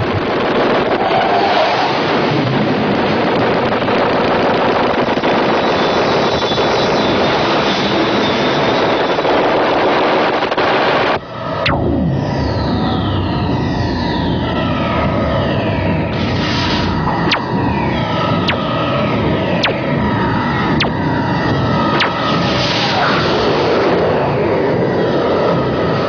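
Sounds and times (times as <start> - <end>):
falling swoop: 16.3 - 19.0, 19.6 - 19.9
rapid electronic rattling: 17.1 - 20.0, 21.9 - 22.3
synthesizer tones: 18.4 - 18.8, 19.6 - 19.9.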